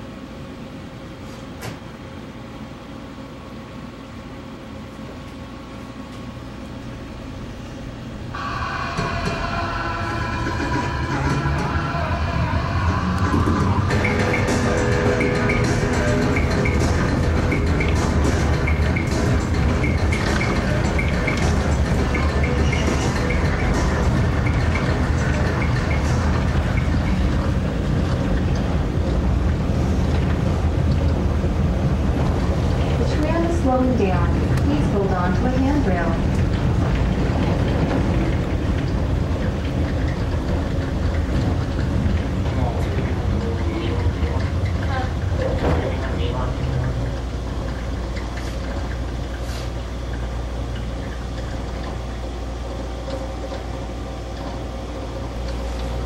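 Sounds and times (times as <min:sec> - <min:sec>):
faint hum: 0:00.0 - 0:56.0
tram running noise: 0:00.0 - 0:56.0
music: 0:08.4 - 0:27.7.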